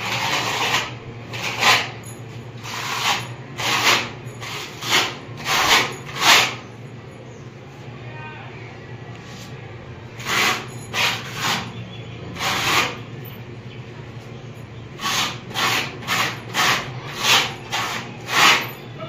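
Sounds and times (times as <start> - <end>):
putty knife scraping wall: 0.0 - 6.7, 10.2 - 13.2, 14.9 - 18.9.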